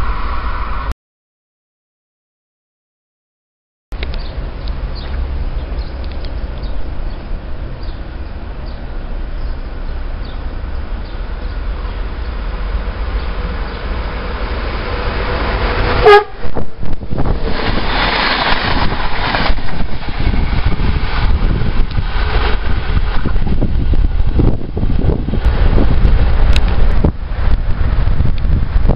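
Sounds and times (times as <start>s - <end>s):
train rushing past: 0.0s - 0.9s, 4.2s - 28.9s
wind rumbling on microphone: 4.0s - 28.9s
train horn blast: 15.4s - 16.6s.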